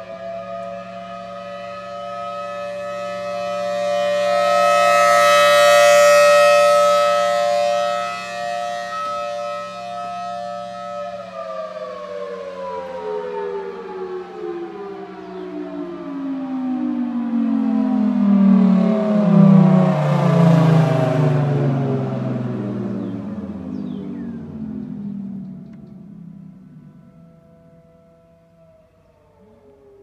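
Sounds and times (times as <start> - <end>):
warning siren steady tone: 0.0 - 30.0.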